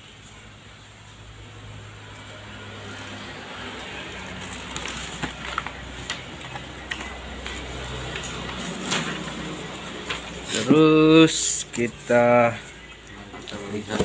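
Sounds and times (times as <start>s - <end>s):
paper and cardboard crinkling: 4.3s - 10.7s.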